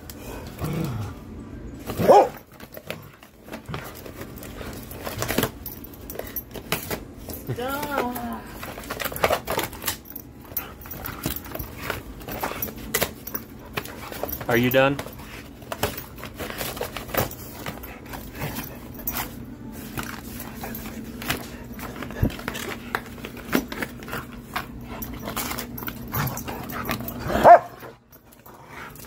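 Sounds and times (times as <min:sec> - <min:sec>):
dog yipping: 0:02.0 - 0:02.4, 0:27.3 - 0:27.8.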